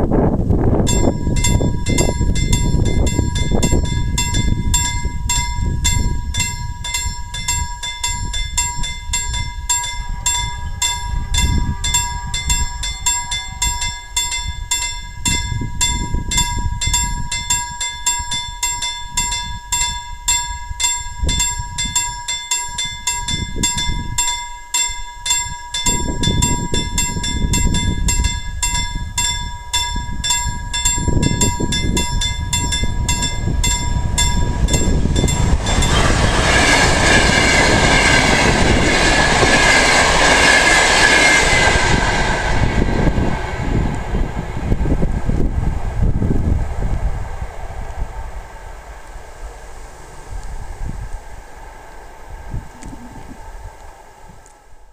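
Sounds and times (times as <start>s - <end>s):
wind rumble on microphone: 0.0s - 54.9s
level crossing warning bell ringing: 0.8s - 44.2s.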